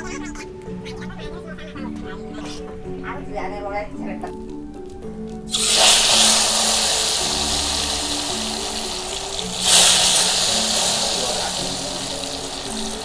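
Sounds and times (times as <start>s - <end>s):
hot oil sizzling in a wok: 5.5s - 13.0s.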